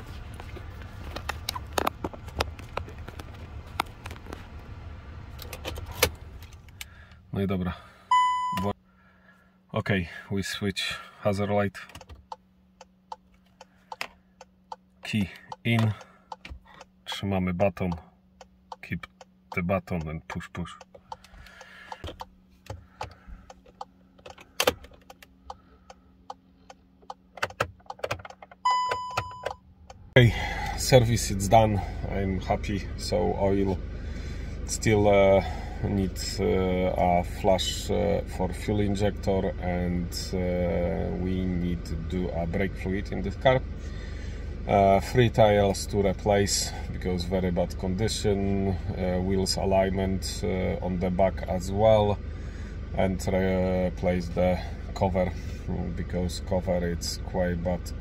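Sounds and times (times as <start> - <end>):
low steady hum: 0.0 - 58.0
light clicks and taps of switches: 11.9 - 28.5.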